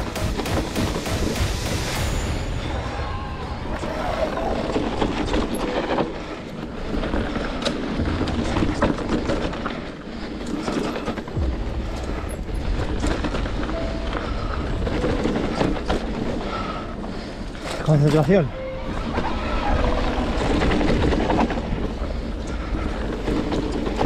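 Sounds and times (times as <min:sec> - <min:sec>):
bike tyres rolling over rocks: 0:03.9 - 0:24.0
bike knocks and rattles: 0:04.9 - 0:17.7.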